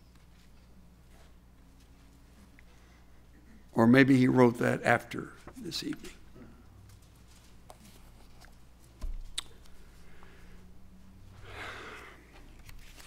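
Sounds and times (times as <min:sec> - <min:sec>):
faint steady hum: 0:00.0 - 0:13.0
paper rustle: 0:12.6 - 0:13.0.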